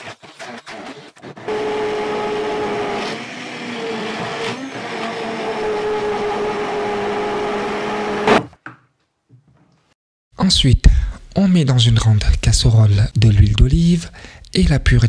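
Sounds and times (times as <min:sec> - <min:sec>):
immersion blender motor whining: 0:00.0 - 0:08.4.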